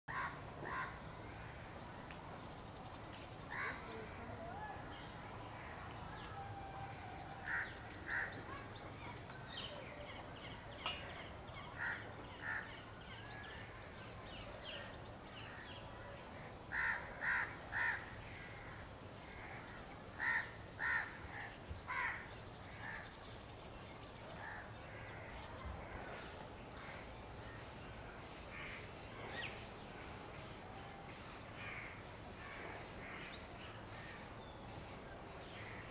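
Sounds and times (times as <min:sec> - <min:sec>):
crows cawing: 0:00.1 - 0:01.0, 0:07.5 - 0:08.4, 0:16.7 - 0:18.0, 0:20.2 - 0:22.2
faint small birds chirping: 0:00.1 - 0:35.9.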